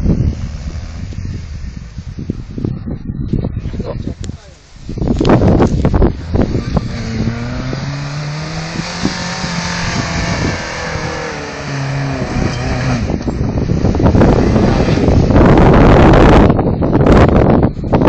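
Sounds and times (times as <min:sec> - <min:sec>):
buggy engine revving hard: 0:06.0 - 0:16.5.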